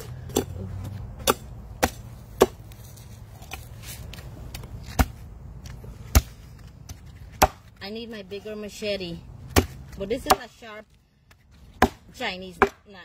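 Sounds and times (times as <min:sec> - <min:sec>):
cleaver chopping on wooden board: 0:00.0 - 0:02.6, 0:06.9 - 0:07.8, 0:09.5 - 0:10.6, 0:11.7 - 0:12.8.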